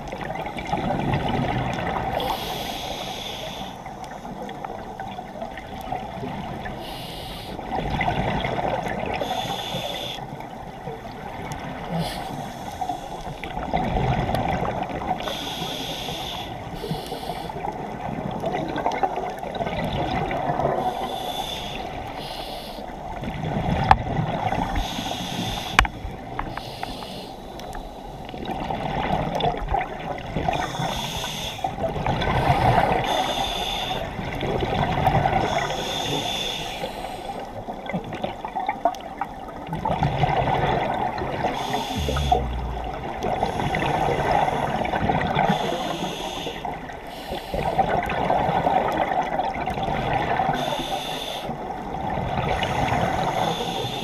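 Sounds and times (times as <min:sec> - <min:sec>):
underwater rush: 0:00.0 - 0:54.0
diver breathing through regulator: 0:02.2 - 0:04.0, 0:06.8 - 0:07.7, 0:09.2 - 0:10.3, 0:11.9 - 0:13.7, 0:15.2 - 0:17.7, 0:20.8 - 0:23.0, 0:24.7 - 0:28.4, 0:30.5 - 0:34.2, 0:35.4 - 0:37.5, 0:41.4 - 0:47.9, 0:50.6 - 0:51.6, 0:52.5 - 0:54.0.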